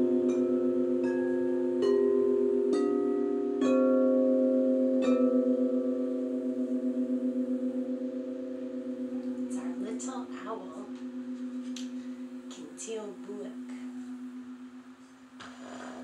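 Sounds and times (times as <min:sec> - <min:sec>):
crystal singing bowls ringing: 0:00.0 - 0:15.4.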